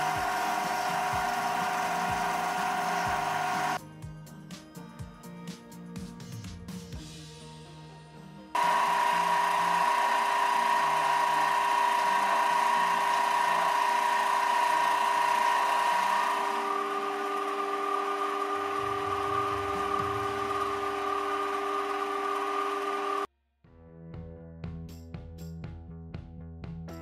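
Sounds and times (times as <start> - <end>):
lathe motor whine: 0.0 - 3.8, 8.6 - 23.3.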